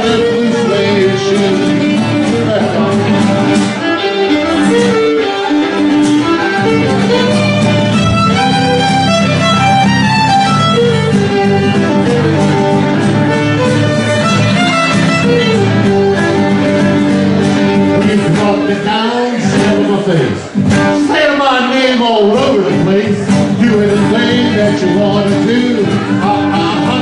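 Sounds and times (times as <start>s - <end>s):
fiddle playing melody: 0.0s - 19.0s
guitar accompaniment: 0.0s - 27.0s.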